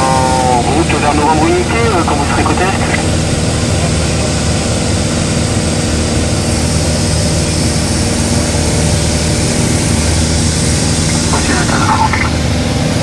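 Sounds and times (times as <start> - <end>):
aircraft engine droning in cabin: 0.0 - 13.0.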